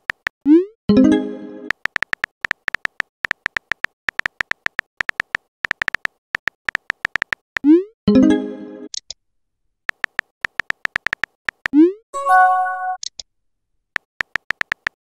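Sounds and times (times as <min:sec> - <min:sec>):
bright chime: 0:12.2 - 0:13.0
electronic keyboard beeps: 0:12.2 - 0:13.1.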